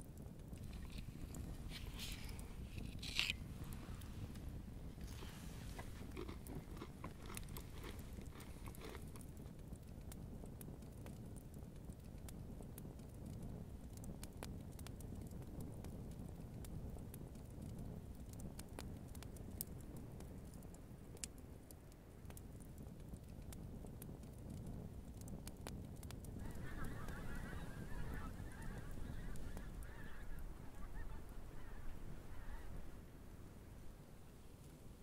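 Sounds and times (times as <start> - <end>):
campfire crackling: 0.0 - 35.0
crunching handling noises: 0.6 - 4.1, 5.0 - 9.3.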